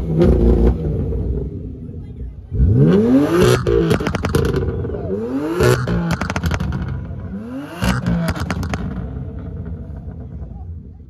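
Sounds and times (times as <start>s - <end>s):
car engine revving: 0.0s - 10.8s
exhaust crackles and pops: 3.4s - 5.0s, 5.6s - 10.8s.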